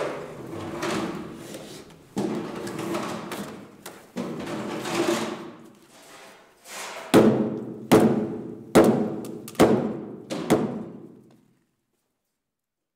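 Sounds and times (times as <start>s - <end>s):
wooden mallet pounding timber: 7.2s - 11.0s.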